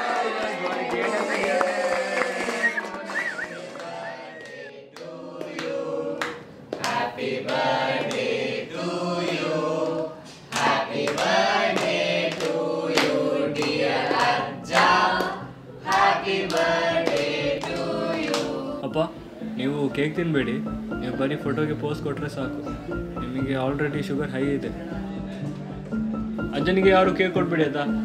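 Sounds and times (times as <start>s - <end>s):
hand claps: 0.0s - 8.3s, 10.5s - 18.6s
group singing in chorus: 0.0s - 19.4s.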